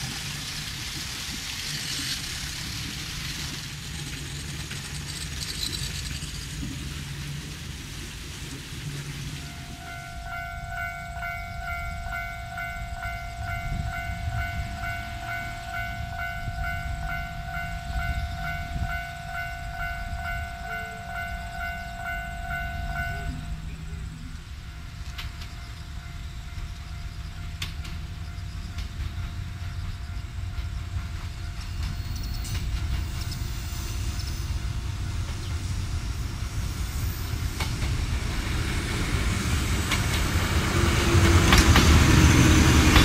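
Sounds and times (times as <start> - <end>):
electric train rumbling: 0.0 - 43.0
pulsing ringing tone: 9.4 - 27.6.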